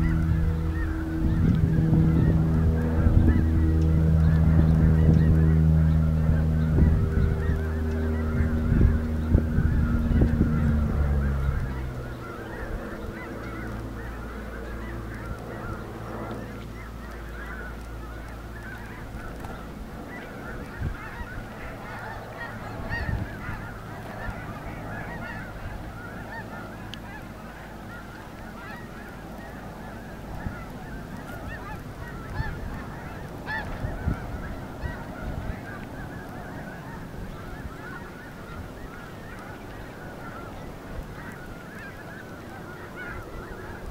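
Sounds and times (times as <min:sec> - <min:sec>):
geese honking: 0:00.0 - 0:43.9
loud low hum: 0:00.0 - 0:43.9.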